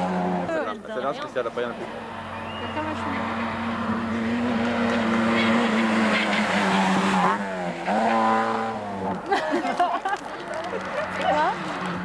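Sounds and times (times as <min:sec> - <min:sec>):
rally car engine at high revs: 0:00.0 - 0:00.6, 0:01.6 - 0:09.3.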